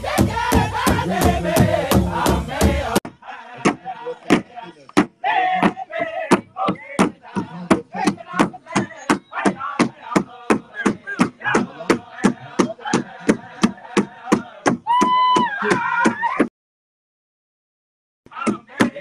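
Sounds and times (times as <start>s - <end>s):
large drum steady beat: 0.0s - 3.0s
men singing high-pitched: 0.0s - 15.8s, 18.3s - 19.0s.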